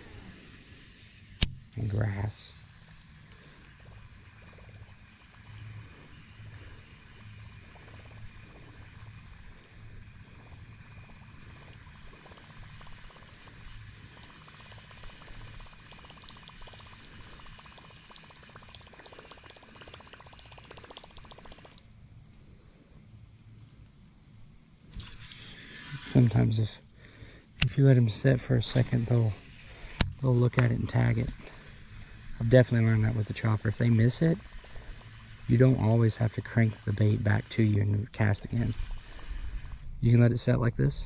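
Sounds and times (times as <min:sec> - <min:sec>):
fishing lure churning water: 0:00.0 - 0:21.9, 0:30.9 - 0:40.1
high-pitched insect hum: 0:00.0 - 0:41.0.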